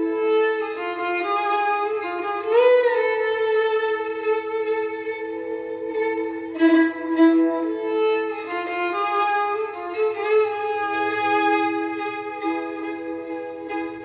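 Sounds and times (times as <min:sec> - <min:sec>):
solo violin melody: 0:00.0 - 0:14.0.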